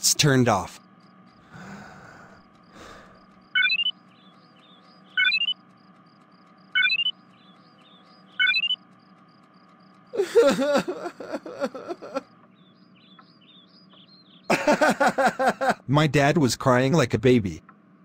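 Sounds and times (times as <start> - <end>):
faint bird chirps: 0.7 - 14.6
short rising chirp: 3.1 - 4.0, 4.6 - 5.6, 6.7 - 8.8
man crying in sobs: 10.2 - 12.3, 14.5 - 15.8.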